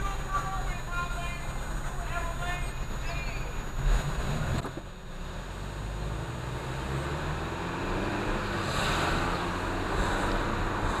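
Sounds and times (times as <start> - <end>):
car engine accelerating: 2.8 - 11.0.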